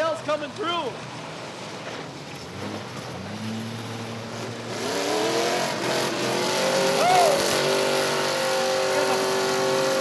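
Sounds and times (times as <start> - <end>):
car engine revving: 2.5 - 10.0.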